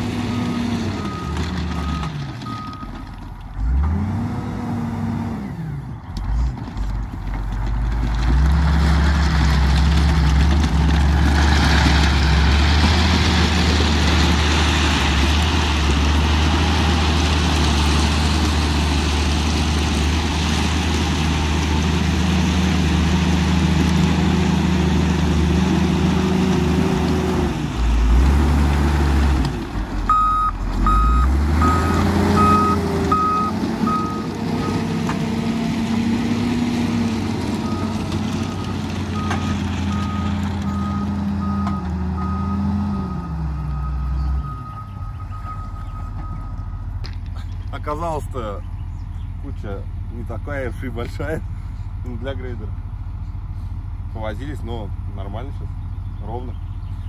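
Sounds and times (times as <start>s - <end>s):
diesel engine running under load: 0.0s - 57.0s
reversing alarm beeping: 30.1s - 34.8s, 37.7s - 46.8s.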